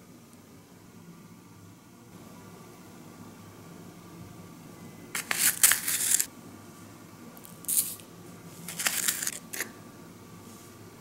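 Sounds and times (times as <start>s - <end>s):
foil paper packet crinkling: 5.2s - 6.3s, 8.7s - 9.7s
plastic scoop in powder: 5.2s - 6.3s, 8.7s - 9.7s.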